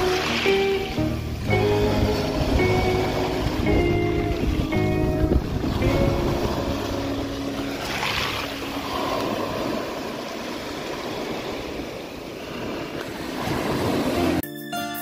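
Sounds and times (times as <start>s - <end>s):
music: 0.0s - 8.6s, 14.2s - 15.0s
sea waves breaking on shore: 0.0s - 14.4s.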